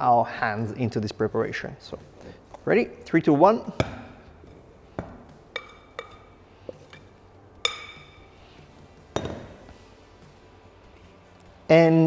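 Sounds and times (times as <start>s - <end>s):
glass bowl knocking on steel: 5.0s - 6.3s, 7.6s - 8.2s, 9.1s - 9.5s.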